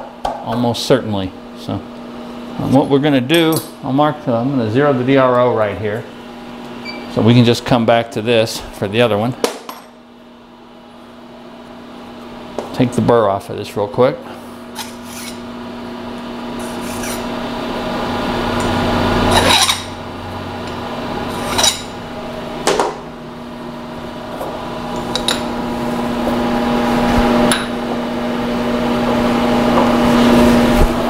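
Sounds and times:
steady machine hum: 0:00.0 - 0:31.0
metal scraping and rasping: 0:14.7 - 0:15.4, 0:16.6 - 0:17.4, 0:19.2 - 0:20.0, 0:21.3 - 0:22.0.

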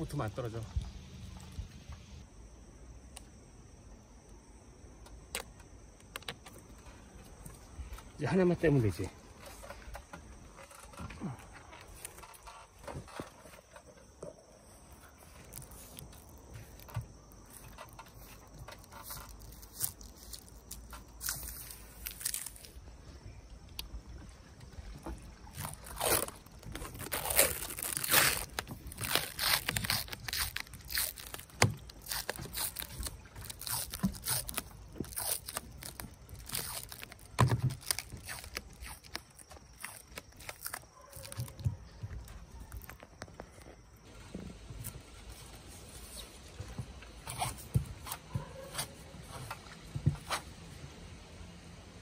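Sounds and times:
plastic film crinkling: 0:14.8 - 0:22.8, 0:25.4 - 0:43.8.

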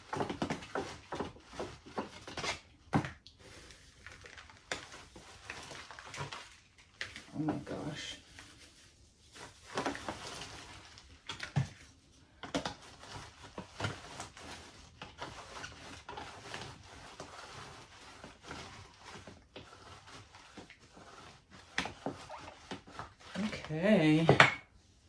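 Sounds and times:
dry moss rustling and crinkling: 0:03.4 - 0:24.2.

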